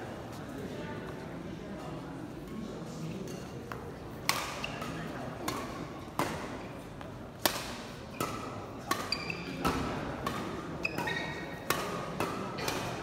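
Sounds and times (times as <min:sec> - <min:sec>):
rackets striking shuttlecock: 0:04.2 - 0:06.6, 0:07.4 - 0:13.0
shoes squeaking on court: 0:09.0 - 0:09.8, 0:10.8 - 0:11.7.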